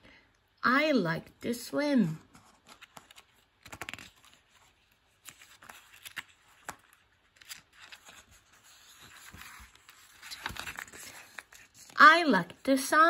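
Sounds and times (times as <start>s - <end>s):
page being turned: 2.2s - 12.6s
paper pages rustling: 2.2s - 12.7s.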